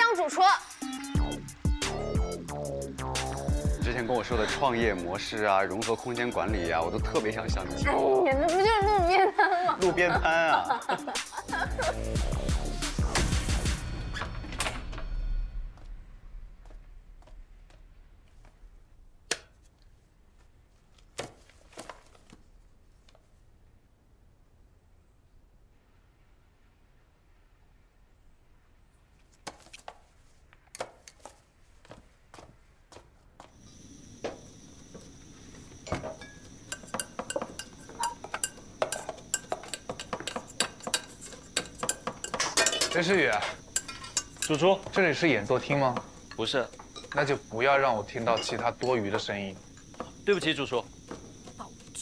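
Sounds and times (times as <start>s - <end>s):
metal utensils and pots clinking: 35.8s - 47.4s, 48.0s - 50.7s.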